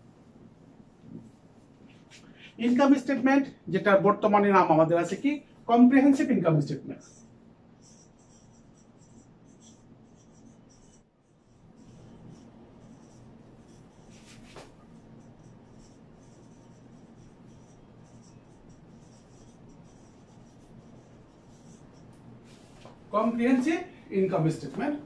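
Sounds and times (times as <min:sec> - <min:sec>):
faint low hum: 0:00.0 - 0:25.0
marker squeaking on whiteboard: 0:07.0 - 0:22.2.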